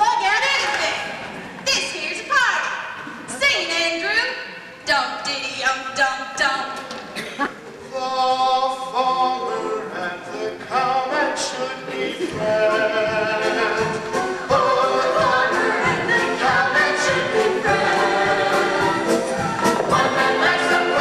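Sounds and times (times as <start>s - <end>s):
cast singing: 7.9s - 21.0s.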